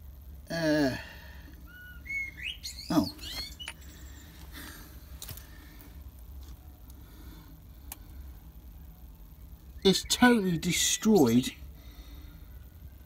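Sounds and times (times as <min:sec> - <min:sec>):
steady low hum: 0:00.0 - 0:13.0
bird chirping: 0:01.6 - 0:04.4, 0:09.4 - 0:11.7
faint clicks: 0:07.8 - 0:08.2.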